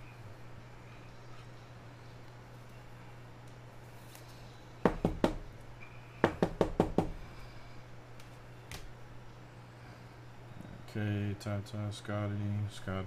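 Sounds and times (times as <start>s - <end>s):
sharp knocks on hard surface: 4.9s - 5.4s, 6.2s - 7.2s.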